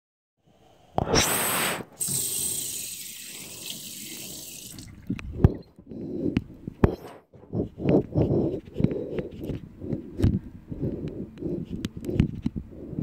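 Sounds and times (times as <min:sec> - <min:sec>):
hands washing under water: 0:01.9 - 0:05.7
tap running into sink: 0:02.0 - 0:05.6.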